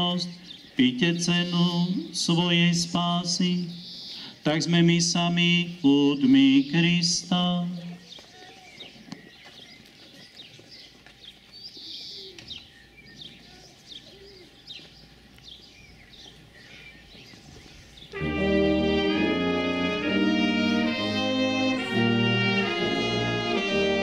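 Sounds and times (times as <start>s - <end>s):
small birds chirping: 0.0s - 18.3s
brass band playing: 18.1s - 24.0s.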